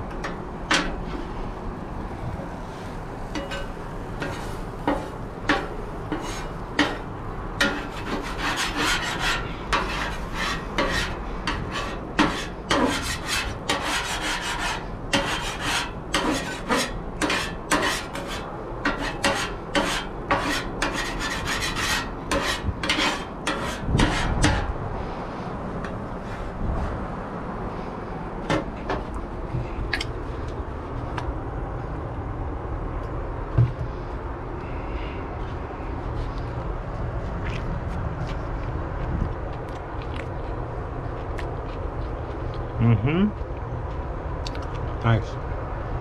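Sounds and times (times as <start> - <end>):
metal scraping on griddle: 2.6 - 24.8.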